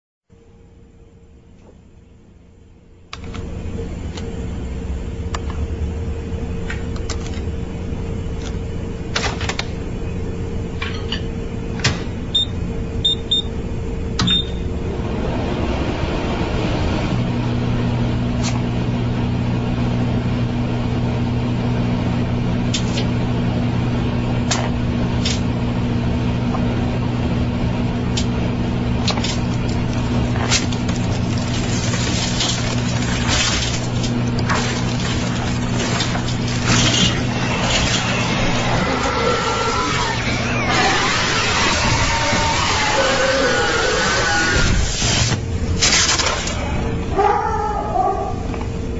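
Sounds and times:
microwave oven humming: 0.3s - 48.9s
sharp cracks and pops: 29.0s - 38.2s, 45.0s - 46.6s.

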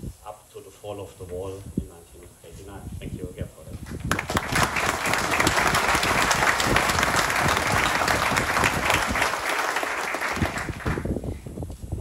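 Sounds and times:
audience applauding: 3.9s - 11.1s.

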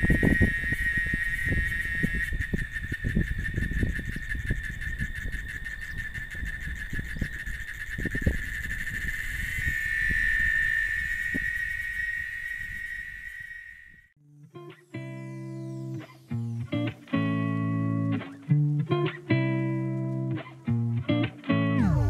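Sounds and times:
cicada buzzing: 0.0s - 14.1s.

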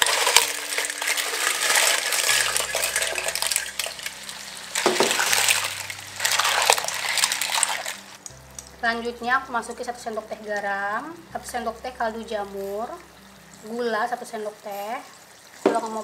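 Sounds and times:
clam shells clattering in a wok: 0.0s - 8.2s
oil sizzling: 0.0s - 16.0s.

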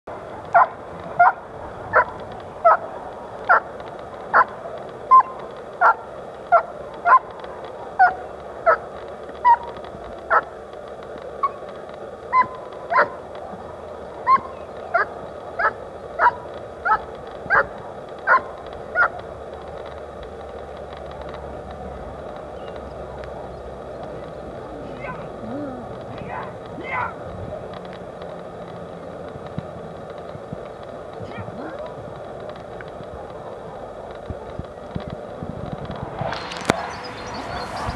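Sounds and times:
dog barking sharply: 12.3s - 13.2s.

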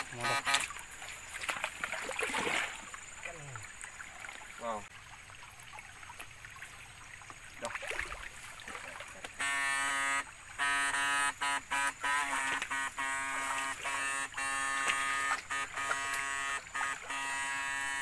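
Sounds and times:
electrical stunner buzzing: 9.4s - 18.0s.

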